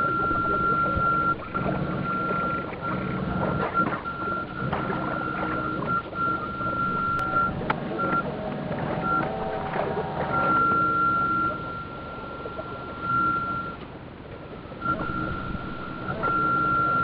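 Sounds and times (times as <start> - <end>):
low motor hum: 0.0 - 17.0
water wash: 0.0 - 17.0
high electrical whine: 14.6 - 17.0.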